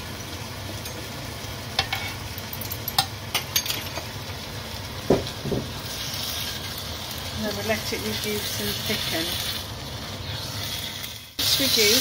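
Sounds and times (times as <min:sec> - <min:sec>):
food sizzling in a frying pan: 0:00.0 - 0:12.0
spatula knocking on pan: 0:05.1 - 0:05.8.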